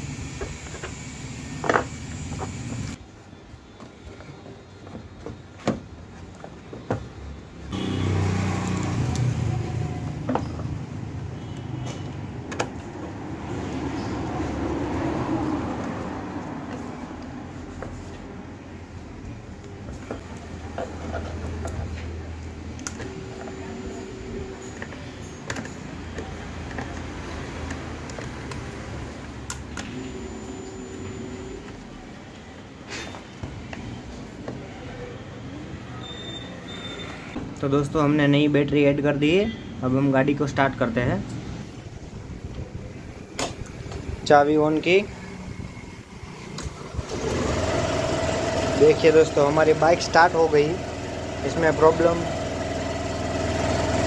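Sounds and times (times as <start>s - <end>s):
vehicle engine running: 46.3s - 54.0s.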